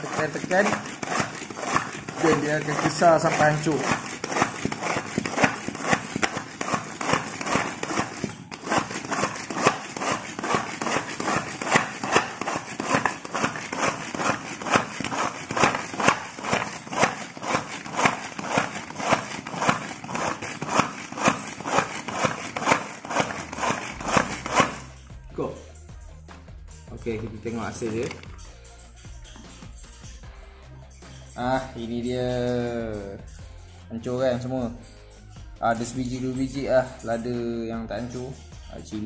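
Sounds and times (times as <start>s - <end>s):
manual food chopper pumping: 0.0s - 25.0s, 27.8s - 28.4s.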